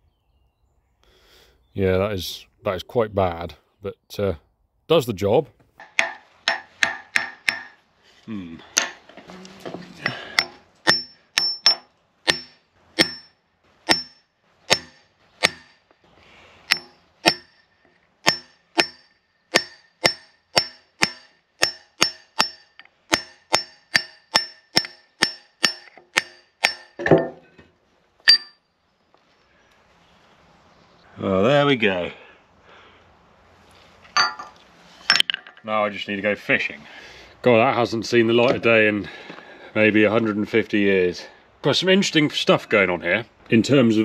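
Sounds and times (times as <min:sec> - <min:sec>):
hammer striking metal: 0:05.8 - 0:07.8, 0:10.3 - 0:15.8, 0:16.7 - 0:27.4.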